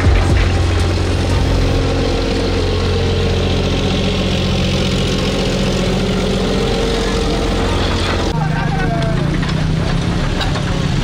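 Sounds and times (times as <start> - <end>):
water sloshing around wheels: 0.0 - 8.4
diesel locomotive engine droning: 0.0 - 11.0.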